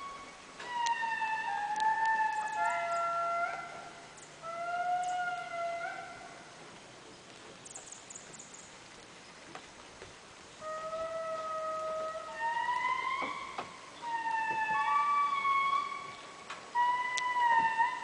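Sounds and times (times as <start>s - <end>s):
lemurs wailing song: 4.4s - 6.2s, 10.6s - 16.1s.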